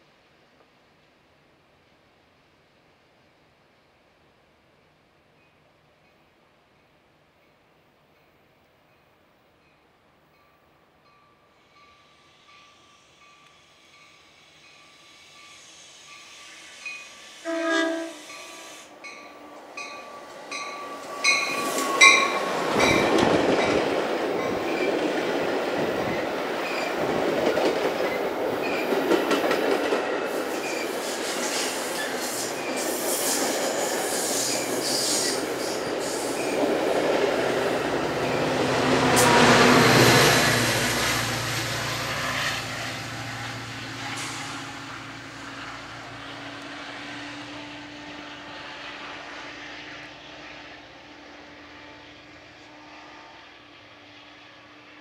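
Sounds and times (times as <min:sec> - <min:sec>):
train cars rushing and clattering: 0:11.0 - 0:52.9
diesel locomotive engine rumbling: 0:11.7 - 0:55.0
train horn blast: 0:17.4 - 0:22.6, 0:37.9 - 0:42.8, 0:44.0 - 0:49.4, 0:51.4 - 0:54.0.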